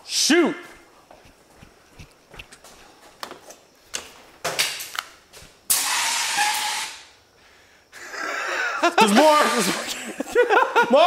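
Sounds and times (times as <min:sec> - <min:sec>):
loud hiss: 0:05.7 - 0:07.2, 0:09.0 - 0:10.2.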